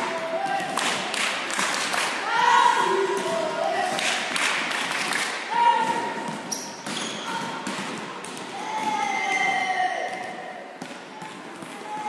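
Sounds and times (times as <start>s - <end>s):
hands slapping volleyball: 0.5s - 2.2s, 3.1s - 9.1s.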